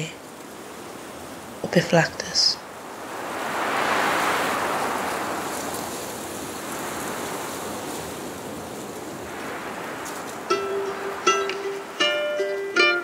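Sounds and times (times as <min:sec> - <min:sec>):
rushing wash of noise: 0:02.6 - 0:13.0.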